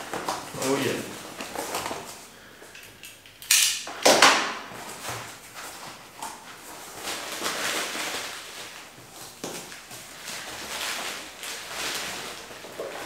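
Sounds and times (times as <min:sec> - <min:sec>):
cardboard box packaging rustling: 0:04.7 - 0:13.0.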